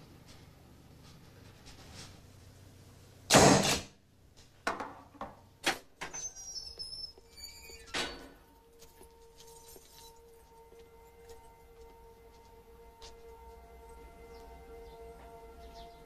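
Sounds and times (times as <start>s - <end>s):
high squeak: 6.1s - 8.4s
metal gate clanking: 7.4s - 8.6s
soft music tone: 8.4s - 16.0s.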